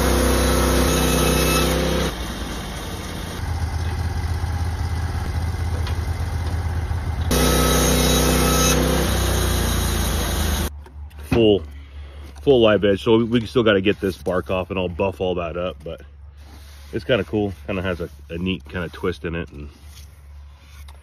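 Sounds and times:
band blade sawing through log: 0:00.0 - 0:02.2, 0:07.3 - 0:10.7, 0:16.4 - 0:21.0
gas engine running: 0:00.0 - 0:10.7.

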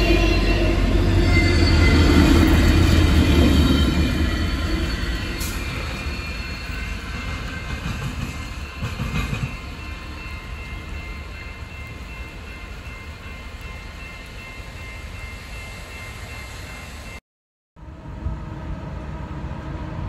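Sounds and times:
freight train rumbling: 0:00.0 - 0:17.2, 0:17.8 - 0:20.0.

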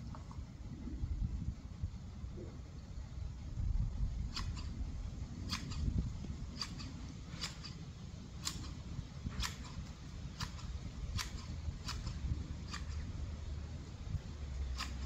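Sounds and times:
low rumble: 0:00.0 - 0:06.6
garden shears clicking: 0:04.2 - 0:13.7, 0:14.4 - 0:15.0.

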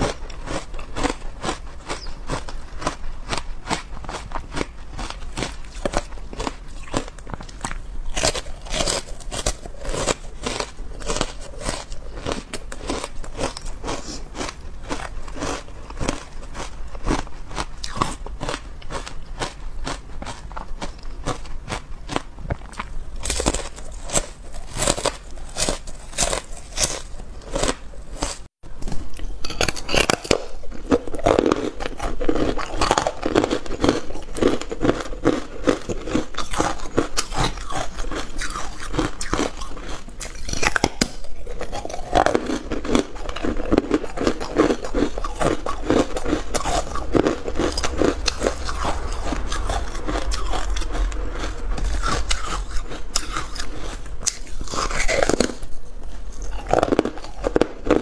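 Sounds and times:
crunchy ice chewing: 0:00.0 - 0:58.0.

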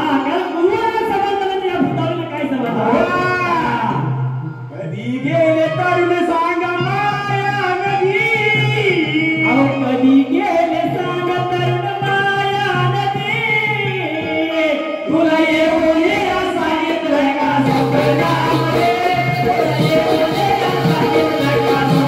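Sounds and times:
instrumental accompaniment: 0:02.6 - 0:22.0
folk singing: 0:15.1 - 0:22.0.

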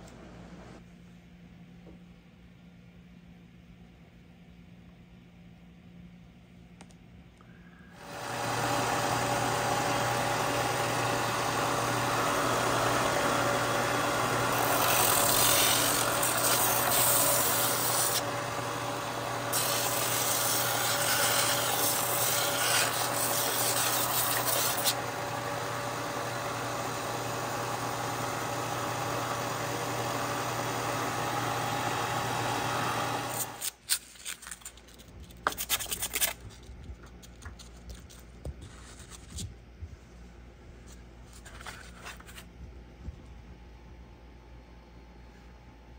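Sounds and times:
belt sander motor hum: 0:08.0 - 0:33.7.

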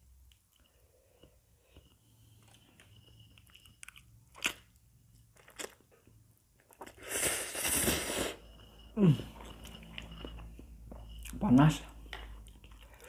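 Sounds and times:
soft chewing: 0:00.2 - 0:07.1, 0:08.0 - 0:13.0
noodle slurping: 0:06.9 - 0:08.5.

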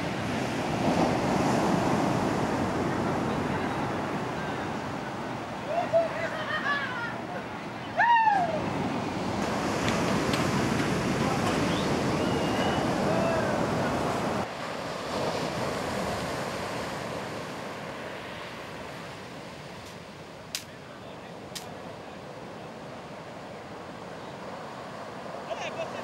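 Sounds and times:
ocean surf washing on beach: 0:00.0 - 0:26.0.

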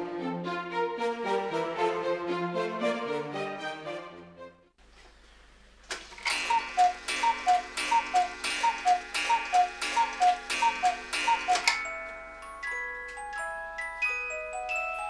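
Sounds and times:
clock mechanism clacking: 0:05.9 - 0:11.9
cuckoo clock two-note call: 0:06.3 - 0:12.3.

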